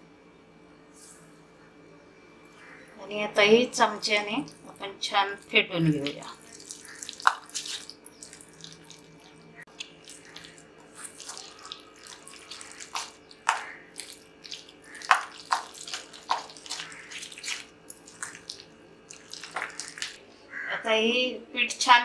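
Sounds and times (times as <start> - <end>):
spoon beating batter in bowl: 6.0 - 20.2
wet squelches and slaps: 6.0 - 20.2.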